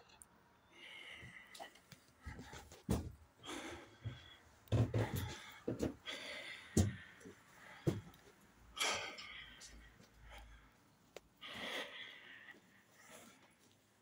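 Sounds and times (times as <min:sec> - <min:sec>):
person breathing heavily and sighing: 0:00.6 - 0:13.9
thumps and knocks: 0:04.0 - 0:06.0.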